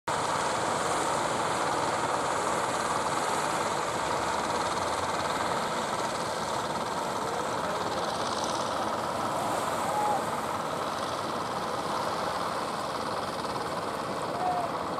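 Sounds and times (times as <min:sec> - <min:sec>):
wind: 0:00.1 - 0:14.9
boat engine chugging: 0:01.2 - 0:14.9
surf: 0:07.2 - 0:12.7.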